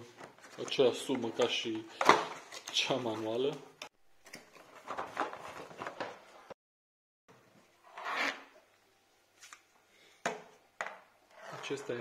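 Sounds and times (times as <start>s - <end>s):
plastic pump handling rustling: 0.1s - 3.4s.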